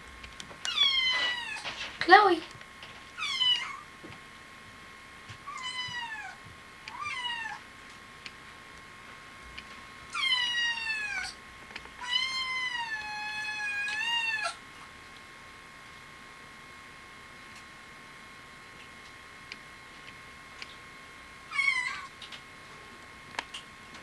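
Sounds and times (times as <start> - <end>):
kitten meowing: 5.5 - 7.6, 21.5 - 22.1.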